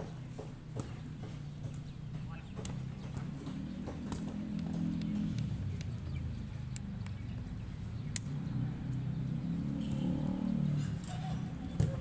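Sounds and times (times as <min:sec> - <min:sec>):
ball kicked: 0:11.7 - 0:12.0.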